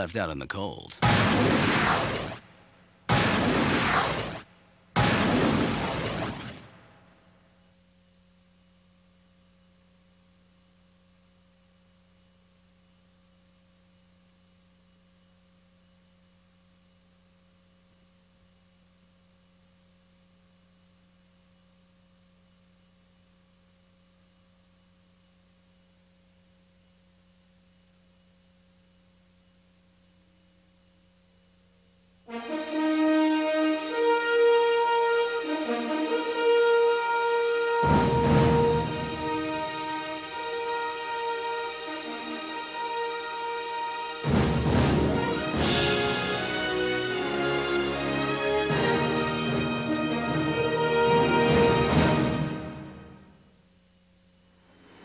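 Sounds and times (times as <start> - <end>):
faint electrical hum: 0.0 - 55.0
orchestral brass fanfare: 32.3 - 53.0.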